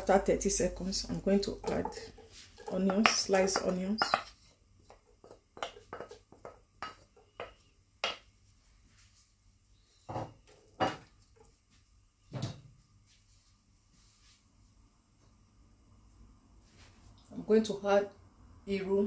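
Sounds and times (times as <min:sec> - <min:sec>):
spoon scraping a ceramic plate: 0:04.0 - 0:04.5.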